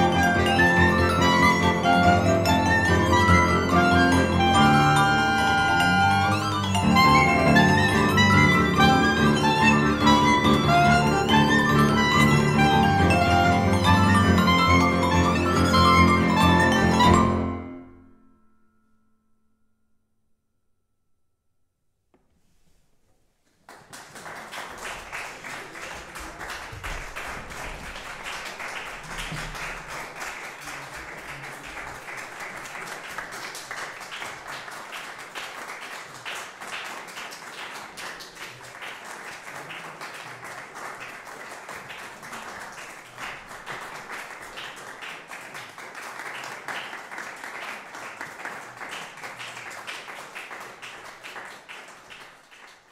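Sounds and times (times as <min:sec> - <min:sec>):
audience applauding: 0:00.0 - 0:17.5, 0:23.5 - 0:52.9.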